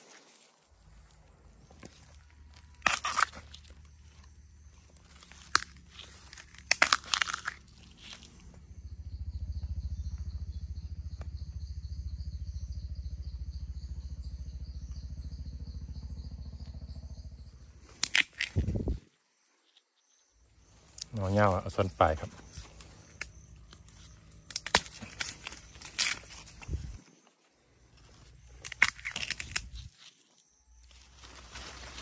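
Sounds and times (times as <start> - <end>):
dry leaf litter crunching: 0.0 - 8.5, 20.7 - 27.3, 28.0 - 32.0
insects trilling faintly: 0.0 - 32.0
steady low rumble: 0.6 - 19.0, 20.4 - 30.0.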